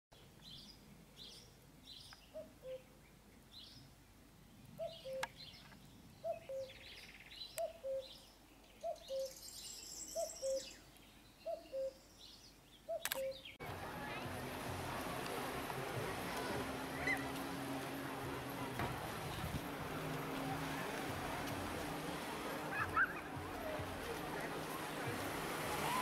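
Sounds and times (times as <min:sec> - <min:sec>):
birds chirping: 0:00.2 - 0:26.0.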